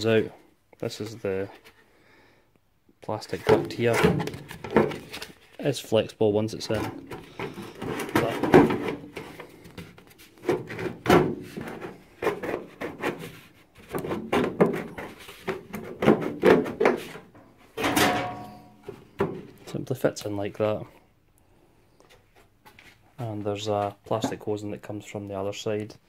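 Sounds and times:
plastic scraping against metal: 3.3 - 5.6, 6.6 - 19.8
plastic duct knocking: 6.9 - 17.3.

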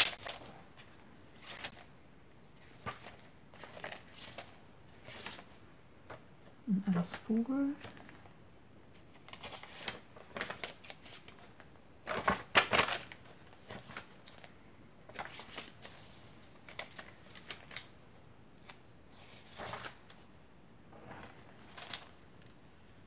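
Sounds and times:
paper pages turning: 0.0 - 1.9, 2.6 - 6.2, 9.0 - 14.5, 15.1 - 17.9, 18.6 - 20.3, 21.0 - 22.5.

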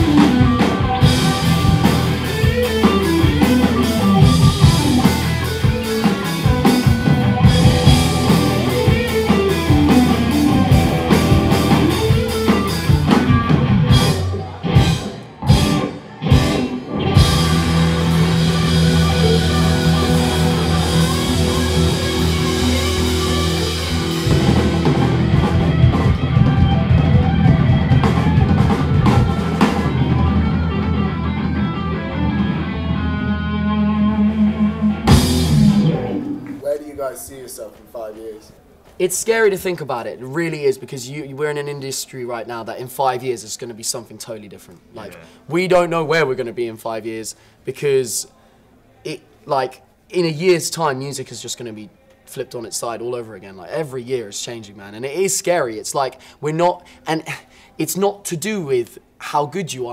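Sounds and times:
rock band playing: 0.0 - 36.6.

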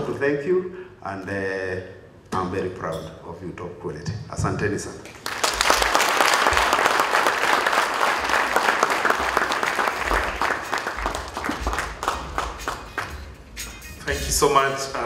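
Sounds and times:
audience applauding: 5.1 - 13.3.

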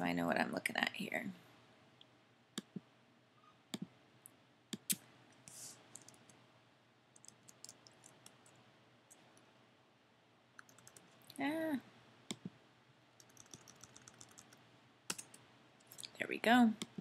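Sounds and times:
soft keystrokes on keyboard: 5.9 - 6.4, 7.2 - 9.4, 10.6 - 11.4, 13.2 - 15.4
sharp computer clicks: 7.2 - 8.4, 13.2 - 15.4.

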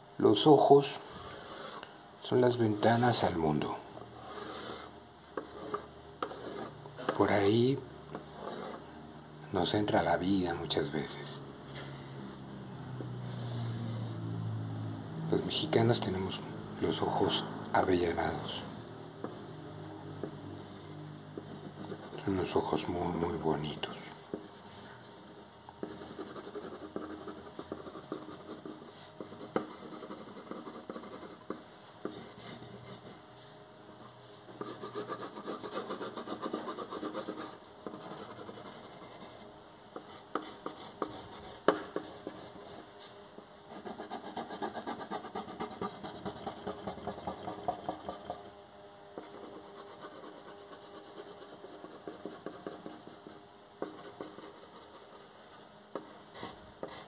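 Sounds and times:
pencil scratching on paper: 1.0 - 1.8, 4.2 - 7.2, 8.2 - 8.8, 21.4 - 33.2, 34.1 - 42.9, 43.7 - 48.4, 49.2 - 55.6, 56.4 - 57.0.

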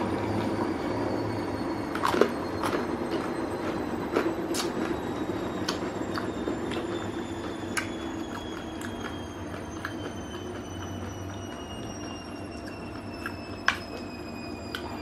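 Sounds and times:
washing machine spinning: 0.0 - 15.0.

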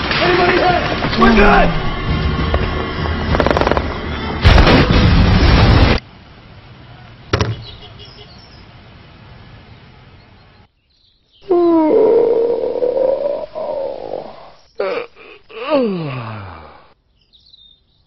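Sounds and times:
gunfire and explosions: 0.0 - 6.0.

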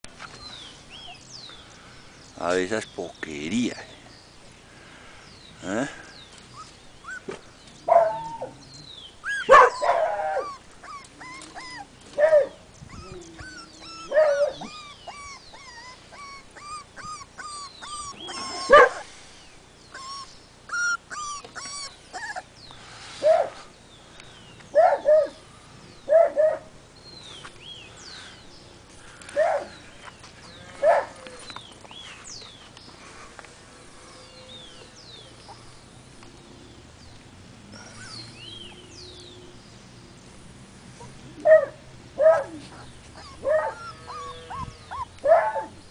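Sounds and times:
puppies yelping and barking: 6.3 - 22.7, 41.0 - 45.9.

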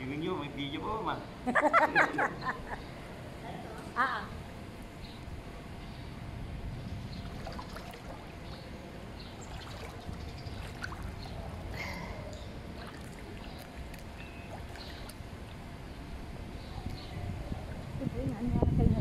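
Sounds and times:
pool water splashing: 7.1 - 16.5.

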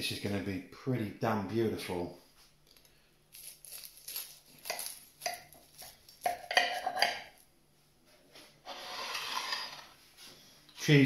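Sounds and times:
pastry crust crunching: 2.6 - 6.9
knife scraping ceramic plate: 8.6 - 10.0.

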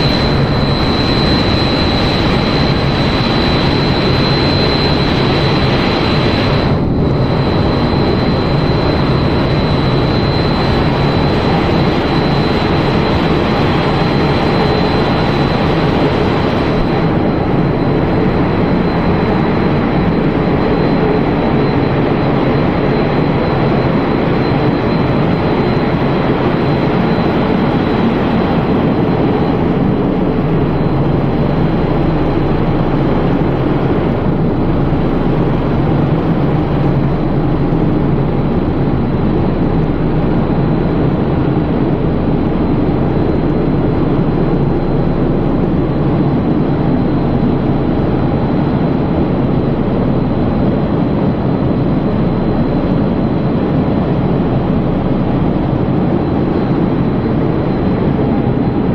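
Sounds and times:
faint high whine: 0.0 - 58.9.

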